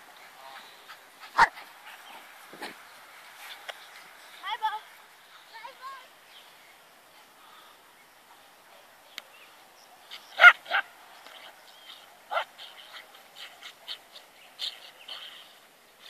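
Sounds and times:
small dog barking: 1.3 - 1.6, 10.3 - 10.9, 12.3 - 13.1.

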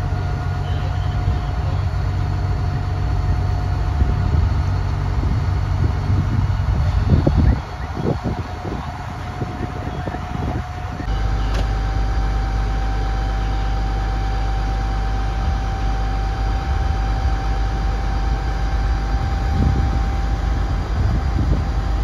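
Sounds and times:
diesel engine hum: 0.0 - 22.0
steady whine: 0.0 - 22.0.

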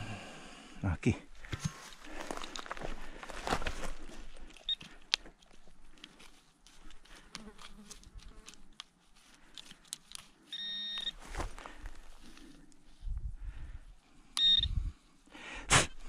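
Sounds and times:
scrapes and clicks in dirt: 1.4 - 12.9
metal detector probe buzzing: 10.5 - 11.2.

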